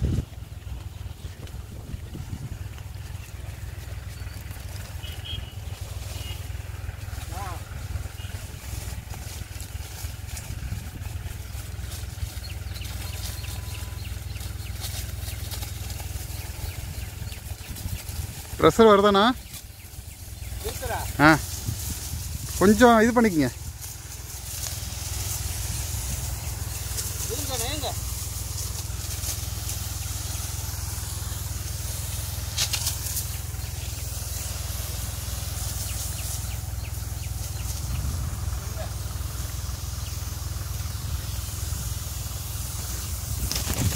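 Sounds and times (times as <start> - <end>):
tractor engine rumbling: 0.0 - 43.9
spray lance hissing: 17.4 - 43.9.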